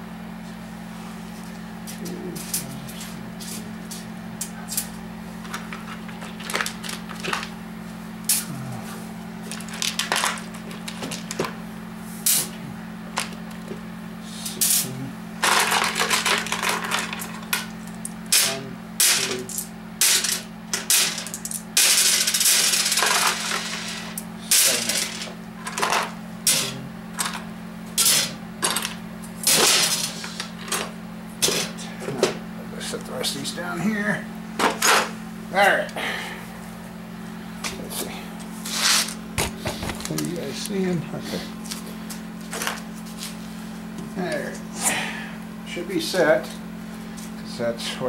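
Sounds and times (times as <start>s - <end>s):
steady low hum: 0.0s - 48.0s
small metal parts clinking: 19.2s - 26.1s.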